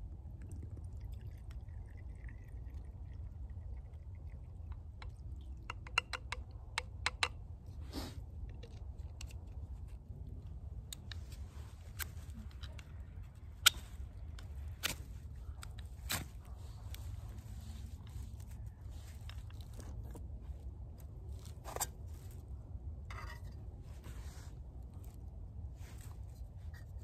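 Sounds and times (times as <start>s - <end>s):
steady low rumble: 0.0s - 5.6s
camping gear clicking and clinking: 5.6s - 22.5s.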